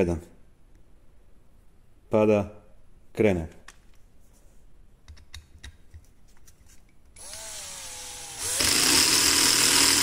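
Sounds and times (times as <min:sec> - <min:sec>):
drill clutch rattling: 0:07.2 - 0:10.0
drill motor whine: 0:07.2 - 0:10.0.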